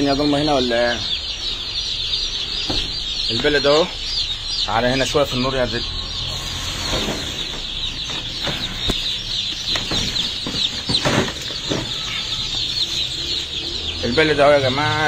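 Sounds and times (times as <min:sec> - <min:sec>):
chicks peeping: 0:00.0 - 0:15.0
sharp knocks: 0:02.6 - 0:03.1, 0:09.6 - 0:12.1.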